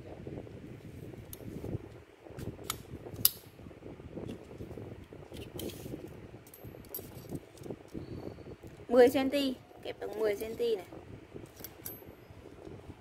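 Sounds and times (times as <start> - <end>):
sharp metallic click: 2.6 - 3.5.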